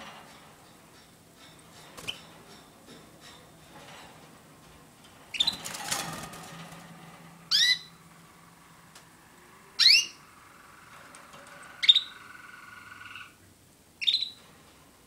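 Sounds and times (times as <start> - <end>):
canary call notes: 14.0 - 14.4.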